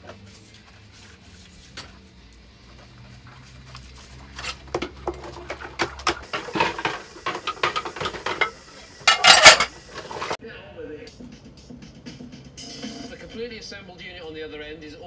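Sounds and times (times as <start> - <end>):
plates and cutlery clinking: 4.3 - 10.4.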